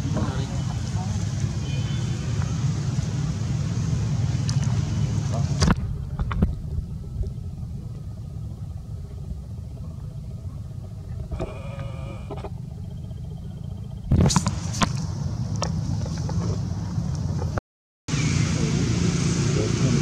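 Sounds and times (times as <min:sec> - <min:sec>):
wind rumble: 0:00.0 - 0:20.0
microphone handling noise: 0:14.0 - 0:17.6.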